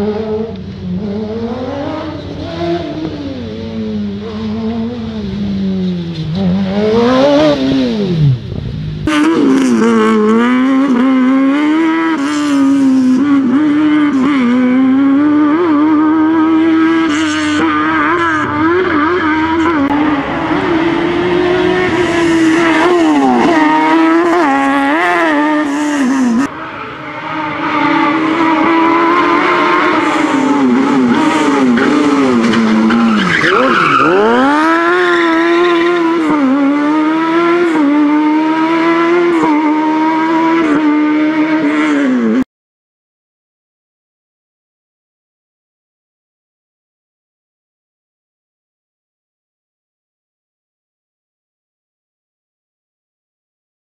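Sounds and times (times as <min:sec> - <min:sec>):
engine revving at high revs: 0:06.4 - 0:08.4, 0:09.1 - 0:26.6, 0:27.5 - 0:33.0, 0:34.0 - 0:42.4.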